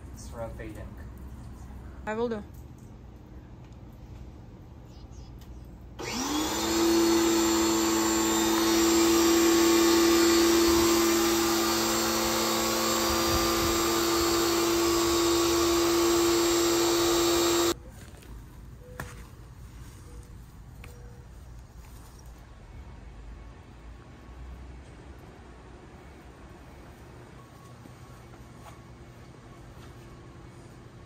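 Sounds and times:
pressure washer motor humming: 0:06.0 - 0:17.8.

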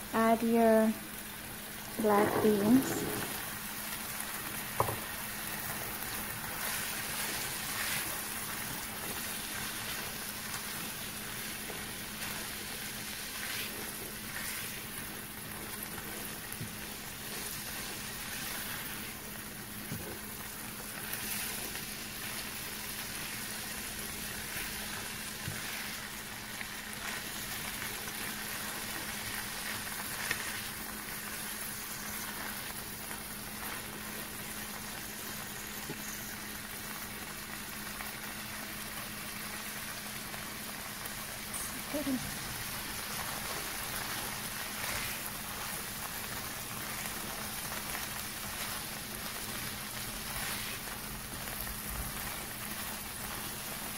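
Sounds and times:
food sizzling in a frying pan: 0:00.0 - 0:53.9
wooden spatula stirring: 0:02.1 - 0:03.4.

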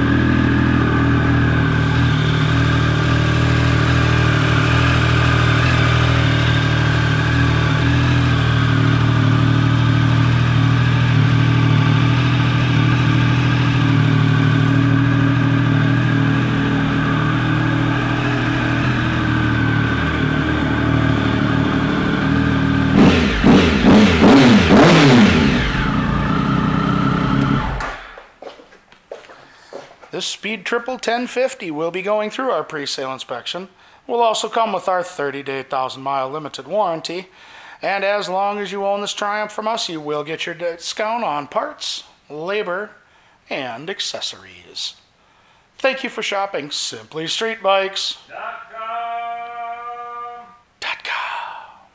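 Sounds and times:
motorcycle engine idling and revving: 0:00.0 - 0:28.1.

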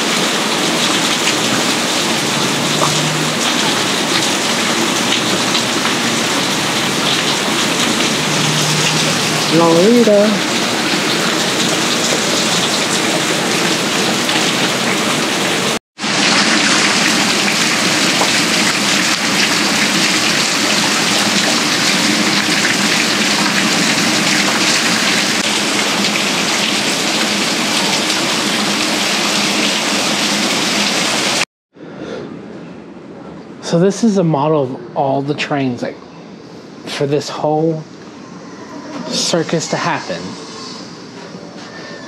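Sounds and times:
heavy rain pouring: 0:00.0 - 0:31.4.

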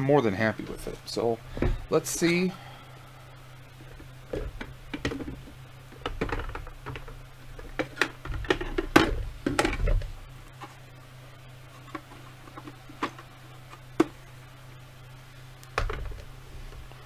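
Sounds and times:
plastic helmet knocks and clicks: 0:04.3 - 0:10.1.

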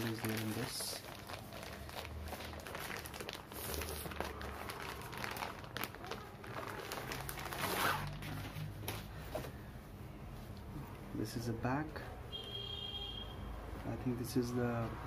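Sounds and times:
plastic bag rustling: 0:00.0 - 0:09.6.

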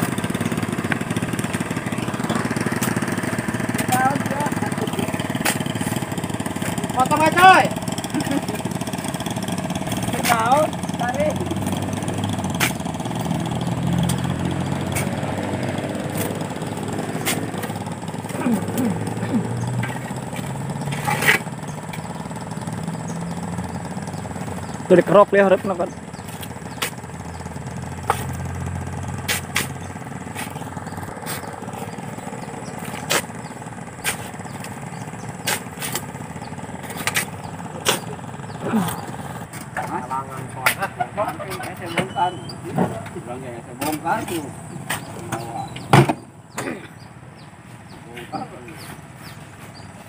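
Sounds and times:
engine idling: 0:00.0 - 0:50.0
shovels scraping wet sand: 0:05.1 - 0:06.8, 0:17.1 - 0:17.6, 0:29.2 - 0:30.6, 0:31.2 - 0:31.5, 0:34.0 - 0:34.8, 0:35.4 - 0:36.1, 0:36.8 - 0:38.1.

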